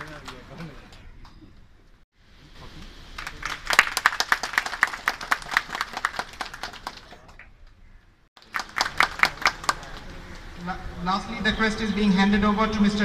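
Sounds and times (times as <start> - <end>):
audience applauding: 3.2 - 7.5, 8.4 - 10.1.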